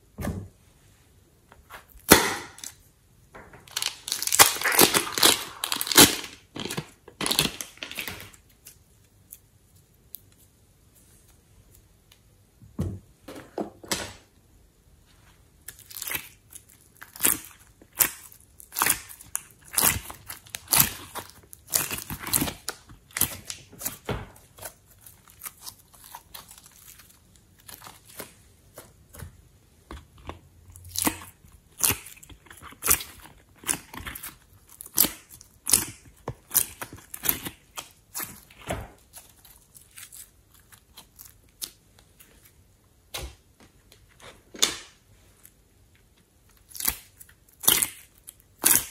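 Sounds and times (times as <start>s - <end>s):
sticky clay and slime squeezing: 3.6s - 10.6s, 15.6s - 43.4s, 46.4s - 48.9s.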